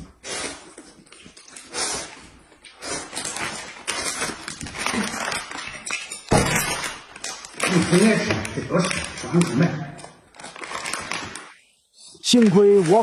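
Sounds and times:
noodles slurped and chewed: 0.0 - 6.0
plastic snack packet crinkling: 2.5 - 11.6, 12.2 - 13.0.

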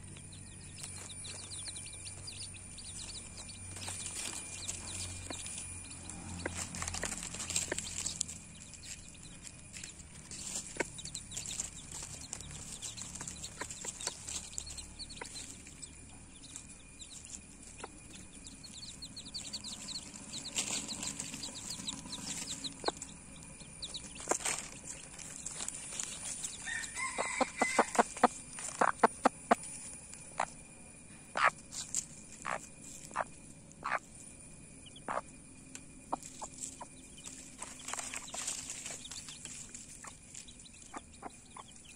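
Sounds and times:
hen clucking: 0.8 - 9.1, 9.8 - 30.5, 31.3 - 34.0, 35.0 - 35.3, 36.0 - 41.9
faint high chick peeps: 9.7 - 30.6, 31.3 - 34.1, 34.8 - 41.9.

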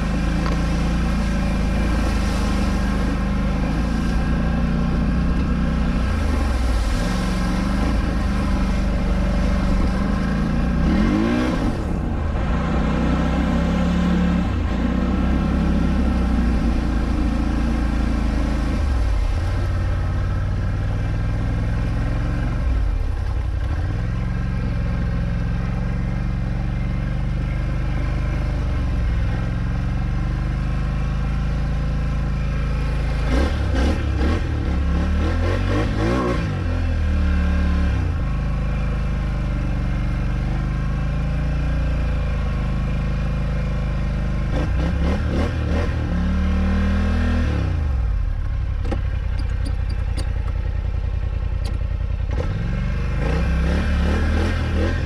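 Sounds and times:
quad engine revving: 0.0 - 19.3, 27.7 - 48.2, 51.6 - 55.0
water splashing: 0.0 - 25.3, 27.7 - 36.2.

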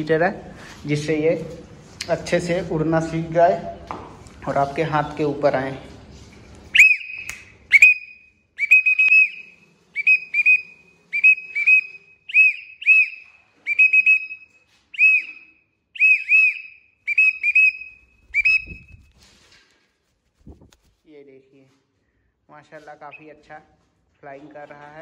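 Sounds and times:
person whistling high notes: 6.8 - 19.0.

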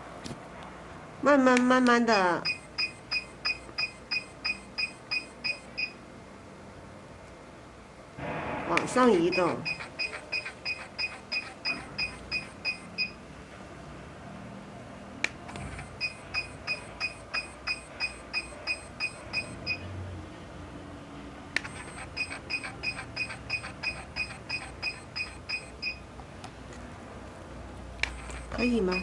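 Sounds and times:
rapid short machine beeps: 2.4 - 6.0, 9.3 - 13.2, 15.7 - 19.8, 21.6 - 26.0, 28.1 - 29.0
sharp machine click: 8.8 - 13.1, 21.6 - 26.0.

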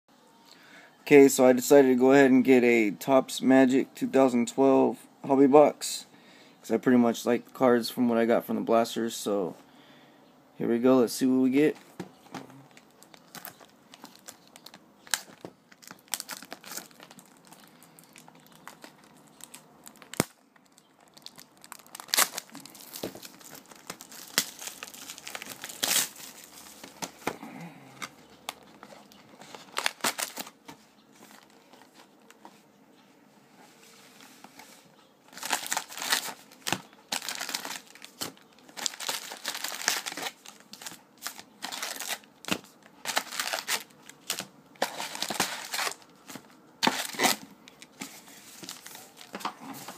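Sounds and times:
plastic wrapping crinkling: 12.1 - 27.4, 28.0 - 32.4, 35.3 - 49.9
foil packs crinkling: 12.7 - 30.6, 35.3 - 49.9.

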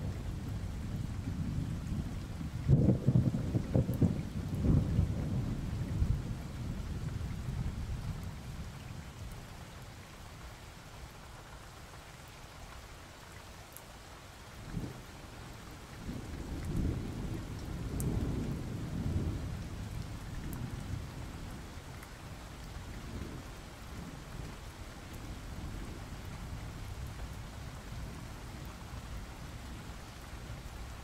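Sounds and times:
rolling thunder: 0.0 - 8.2, 16.0 - 21.5
steady rain: 0.0 - 31.0.

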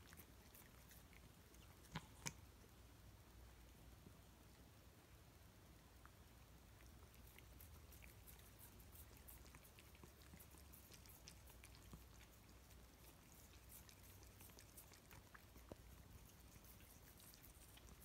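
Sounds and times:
cats licking wet smacks: 0.0 - 2.7, 5.9 - 18.0.

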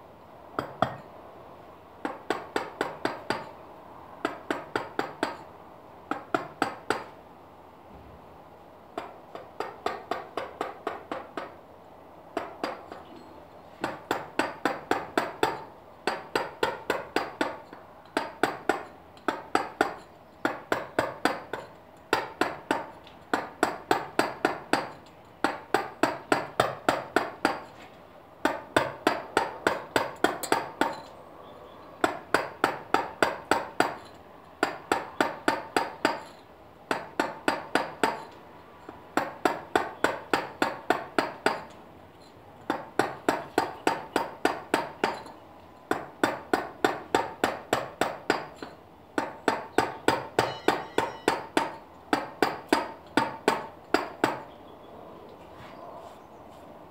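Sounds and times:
mallet striking chisel into stone: 0.6 - 1.1, 6.1 - 7.1, 13.8 - 27.7, 28.4 - 31.1, 32.0 - 38.4, 39.2 - 41.8, 42.7 - 54.5.

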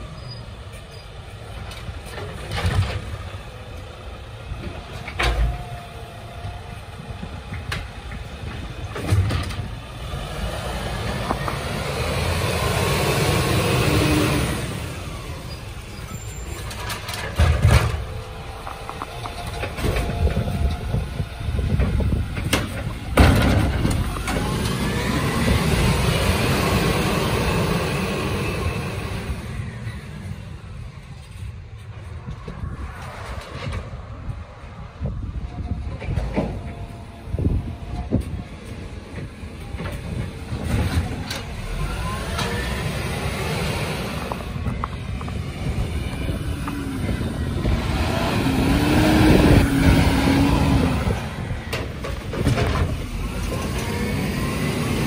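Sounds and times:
garbage truck diesel engine: 0.0 - 55.0.

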